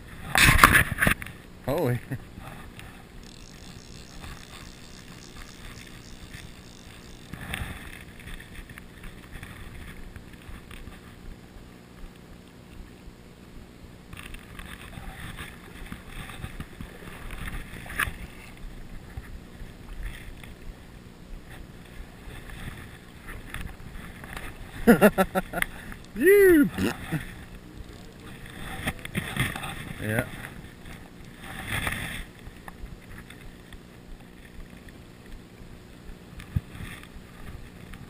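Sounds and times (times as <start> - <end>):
river current running: 1.2 - 10.9.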